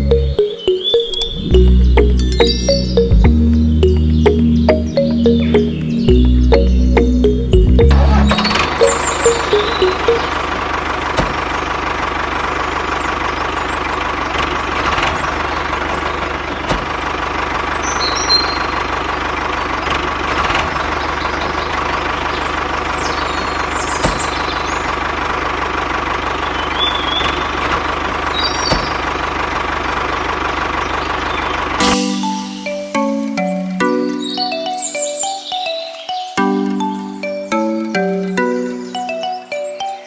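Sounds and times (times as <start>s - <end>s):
faint high chirps: 0.0s - 10.5s
tractor engine idling: 0.0s - 35.3s.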